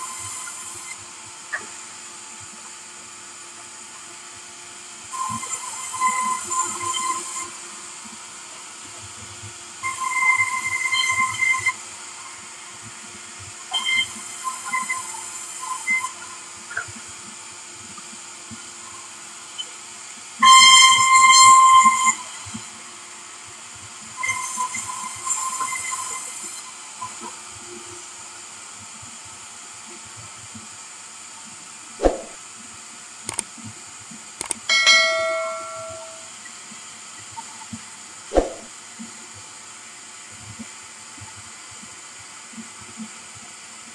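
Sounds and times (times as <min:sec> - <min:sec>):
sharp thuds: 0:32.0 - 0:32.4, 0:38.3 - 0:38.7.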